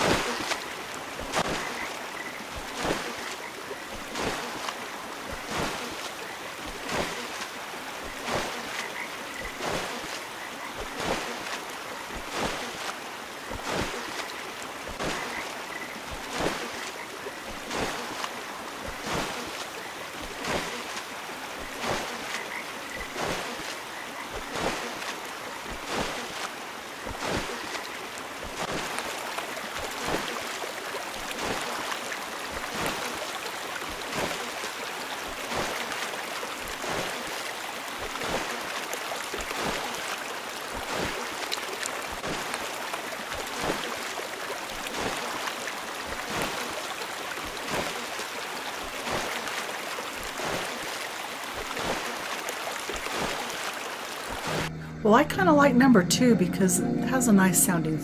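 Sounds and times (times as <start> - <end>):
water wheel splashing: 0.0 - 56.0
running water: 0.0 - 56.3
frog croaking: 21.7 - 26.2.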